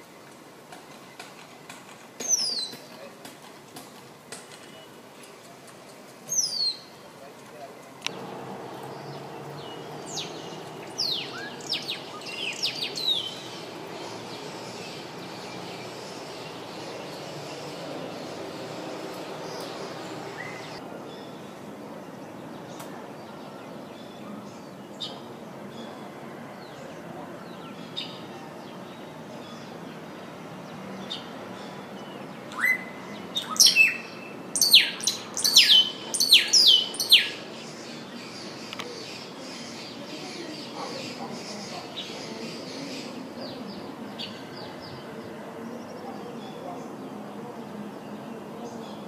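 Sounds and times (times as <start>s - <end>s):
bird singing whistled notes: 6.3s - 6.9s, 8.9s - 13.7s, 20.3s - 20.8s, 32.5s - 37.4s.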